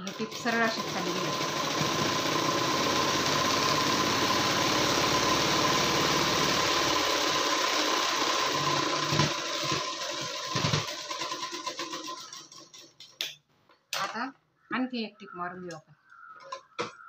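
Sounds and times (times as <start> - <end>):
sewing machine stitching: 0.0 - 13.2.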